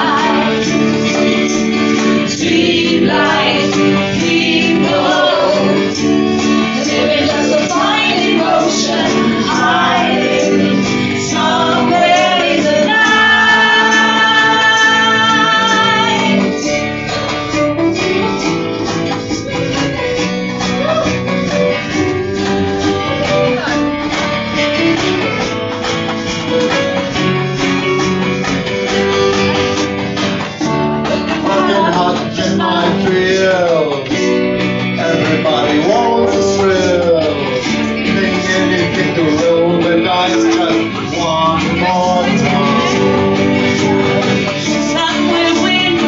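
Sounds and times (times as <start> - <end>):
group of singers: 0.0 - 18.0, 31.0 - 46.0
strummed acoustic guitars: 0.0 - 46.0.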